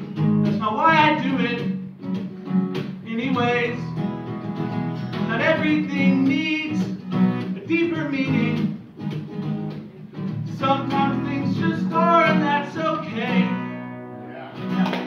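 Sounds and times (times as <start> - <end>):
acoustic guitar strumming: 0.0 - 15.0
man singing: 0.5 - 1.8, 3.0 - 4.0, 5.2 - 7.0, 7.6 - 8.8, 10.5 - 13.9.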